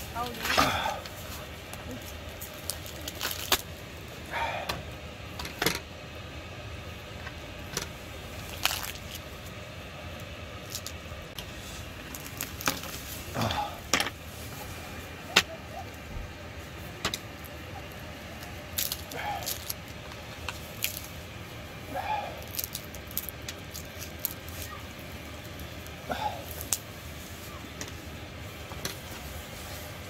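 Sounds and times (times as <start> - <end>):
crisp pork skin cracking: 2.5 - 3.7, 8.4 - 9.3, 12.1 - 13.0, 18.4 - 21.2, 22.4 - 26.9
meat tearing: 2.6 - 3.6, 8.5 - 9.2, 22.2 - 25.6.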